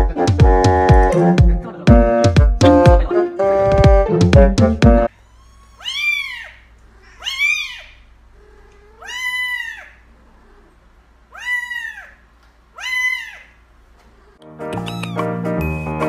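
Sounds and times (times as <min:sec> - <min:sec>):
kitten meowing: 0:05.1 - 0:10.0, 0:11.3 - 0:12.2, 0:12.8 - 0:13.6, 0:14.7 - 0:16.0.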